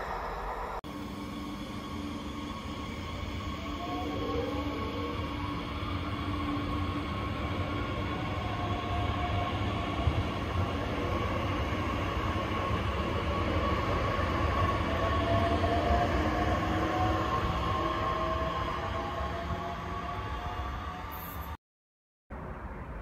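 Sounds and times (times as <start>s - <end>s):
train wheels rumbling on rail: 0.0s - 21.6s.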